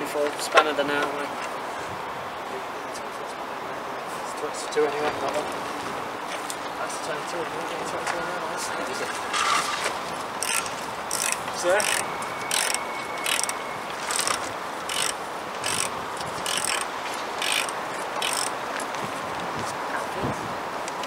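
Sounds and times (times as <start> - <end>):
ratchet spanner clicking: 10.4 - 18.5.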